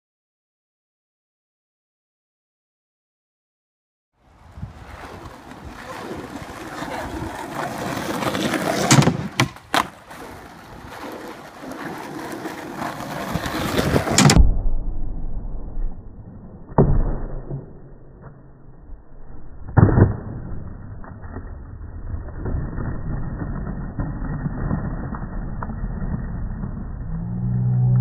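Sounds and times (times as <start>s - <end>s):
skateboard wheels rolling on asphalt: 4.2s - 14.4s, 18.2s - 28.0s
skateboard clacks: 4.6s - 14.4s
skateboard knocking on plywood box: 8.0s - 10.0s.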